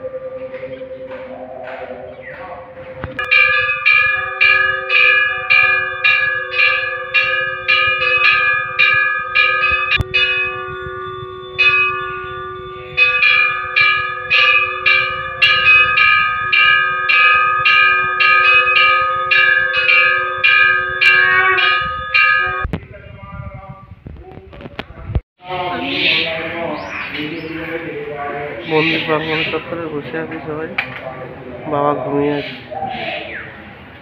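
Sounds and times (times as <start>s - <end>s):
brass bell ringing: 0.0s - 22.7s.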